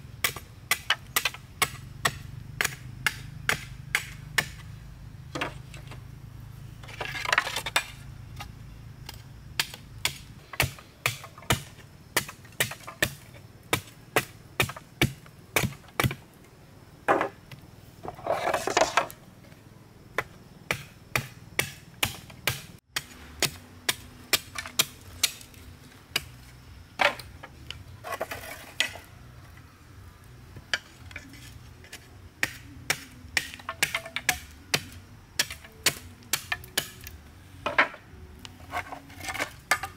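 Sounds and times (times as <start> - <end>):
machete chopping bamboo: 0.2 - 4.7, 9.0 - 16.2, 20.2 - 26.4, 32.4 - 37.1
rasping of bamboo: 38.6 - 39.9.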